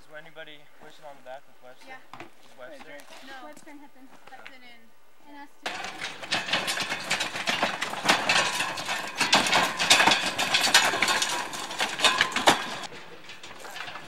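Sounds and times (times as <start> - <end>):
wooden cart rattling over rocks: 5.6 - 14.0.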